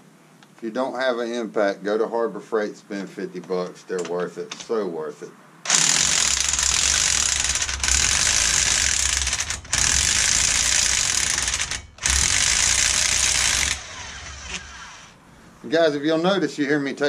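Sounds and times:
electric impact wrench hammering: 0:05.6 - 0:15.2.

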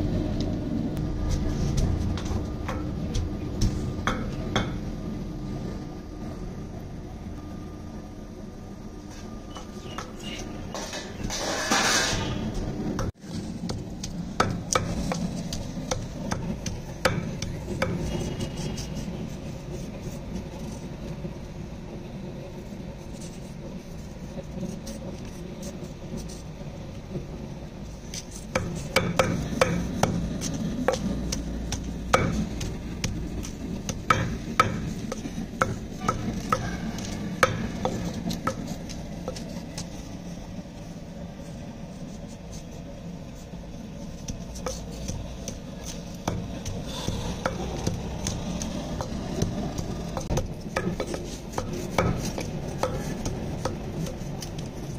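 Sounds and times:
knife scraping radish: 0:13.2 - 0:21.0, 0:22.8 - 0:26.6, 0:27.8 - 0:54.9.

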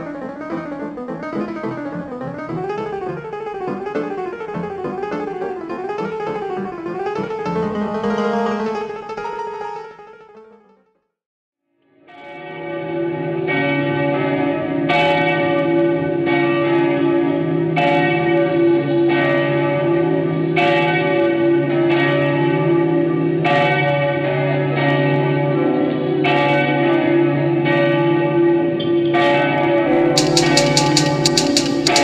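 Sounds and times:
church bells ringing: 0:12.1 - 0:32.0.

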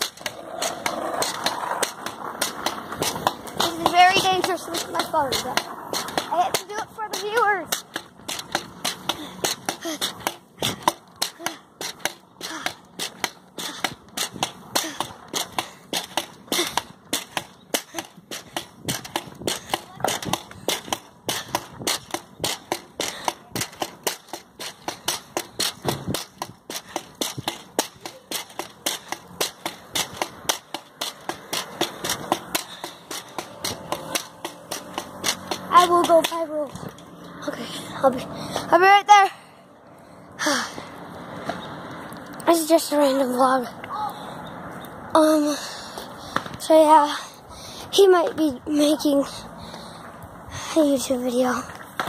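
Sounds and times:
skateboard rolling rumble: 0:00.0 - 0:14.8
skateboard wheels clacking: 0:00.0 - 0:37.3, 0:51.0 - 0:52.0.

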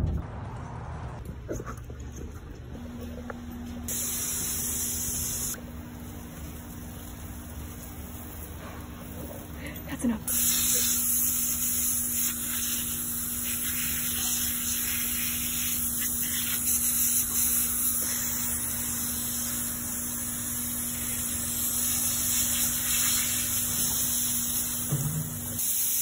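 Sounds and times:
hose nozzle spraying water: 0:10.3 - 0:26.0.

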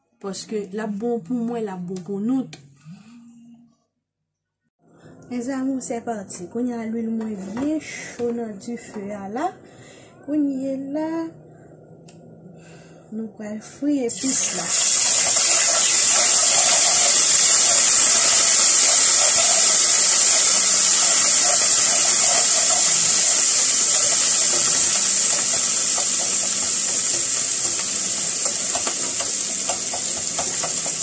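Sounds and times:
food sizzling in hot oil: 0:14.1 - 0:31.0.

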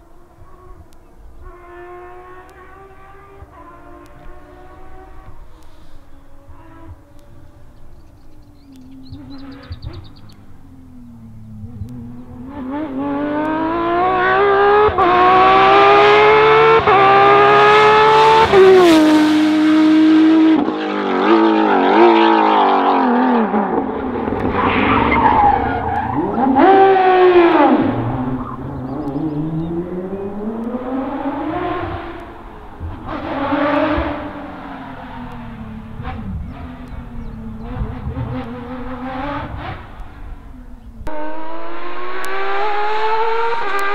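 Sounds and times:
car engine revving through gearshifts: 0:11.4 - 0:40.4, 0:41.1 - 0:43.9.

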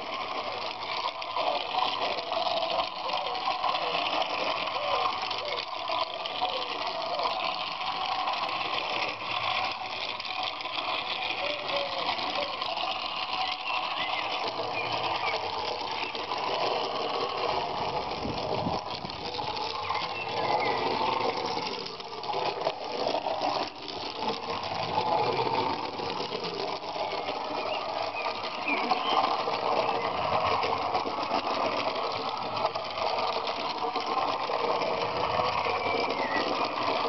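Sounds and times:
toy train motor whirring: 0:00.0 - 0:37.0.

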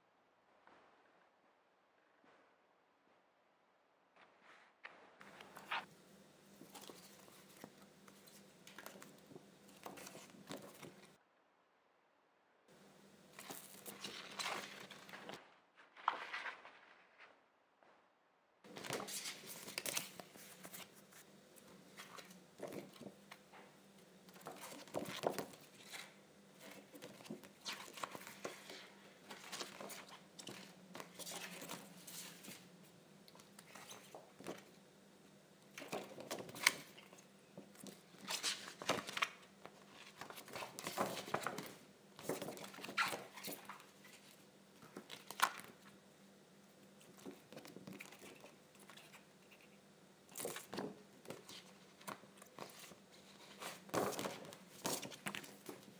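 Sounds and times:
plastic folders rustling and crinkling: 0:06.6 - 0:11.2, 0:13.4 - 0:17.0, 0:18.7 - 0:32.8, 0:33.4 - 0:34.8, 0:35.7 - 0:46.0, 0:50.3 - 0:55.9.

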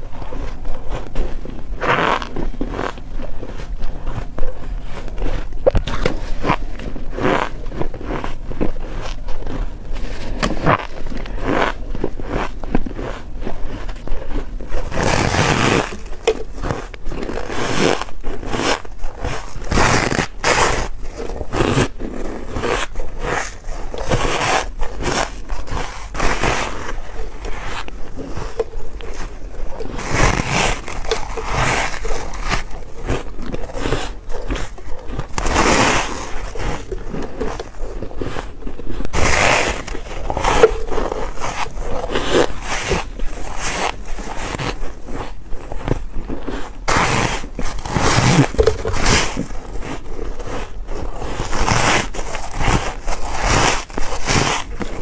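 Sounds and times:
crunchy chewing of frost: 0:00.0 - 0:55.0.

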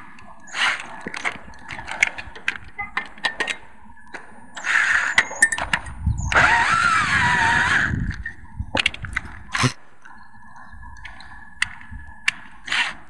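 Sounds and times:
battery drill running: 0:06.3 - 0:07.9.

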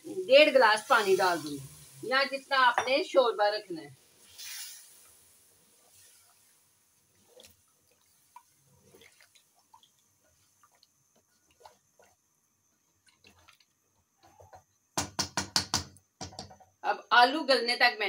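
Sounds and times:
gravy sloshing: 0:04.0 - 0:14.9
spatula tapping and scraping pot: 0:07.1 - 0:12.2, 0:13.0 - 0:16.8.

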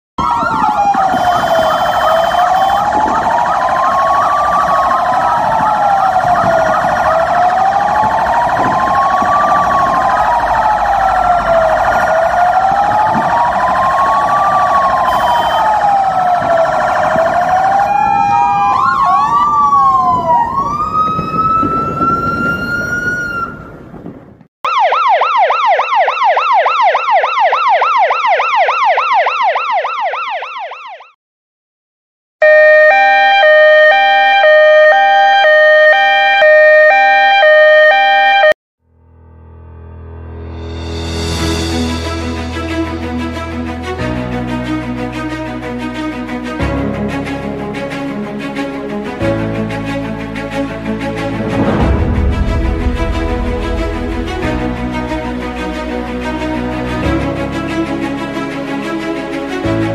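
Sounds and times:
fast yelping siren: 0:00.2 - 0:23.8, 0:24.7 - 0:31.2, 0:32.4 - 0:38.6
fire truck sirens wailing: 0:00.2 - 0:24.1, 0:24.7 - 0:31.2, 0:32.4 - 0:38.6, 0:42.8 - 0:59.9.

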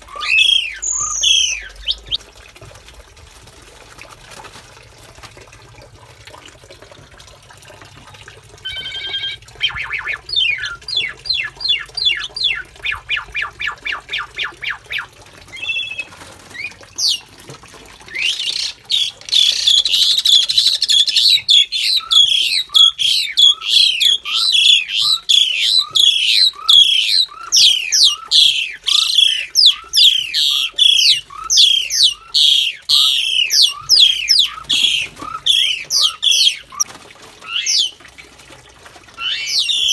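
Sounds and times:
harsh chattering bird calls: 0:00.0 - 0:02.2, 0:08.6 - 0:17.3, 0:18.1 - 0:38.0, 0:39.2 - 0:39.9
starlings calling: 0:00.0 - 0:02.2, 0:08.6 - 0:17.3, 0:18.1 - 0:36.9, 0:37.5 - 0:37.9, 0:39.2 - 0:39.9.

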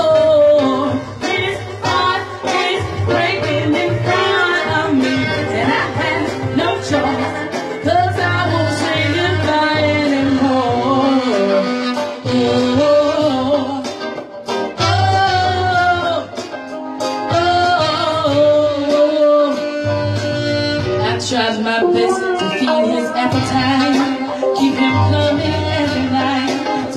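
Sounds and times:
woman singing: 0:00.0 - 0:14.1, 0:14.8 - 0:16.4, 0:17.3 - 0:20.0, 0:21.0 - 0:26.9
electric guitar: 0:00.0 - 0:26.9
saxophone: 0:00.0 - 0:26.9.

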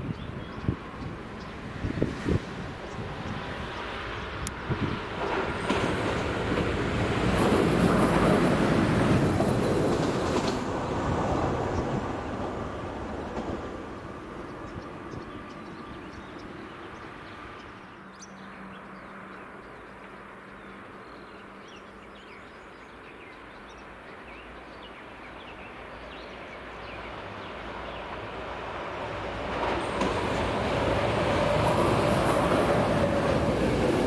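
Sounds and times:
electric train rumbling: 0:00.0 - 0:18.0, 0:25.2 - 0:34.0
small birds chirping: 0:13.8 - 0:29.2.

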